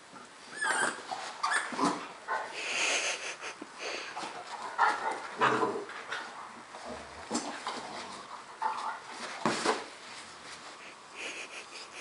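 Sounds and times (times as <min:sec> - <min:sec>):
puppy squealing: 0:00.5 - 0:01.8
dogs huffing and growling: 0:01.7 - 0:09.1.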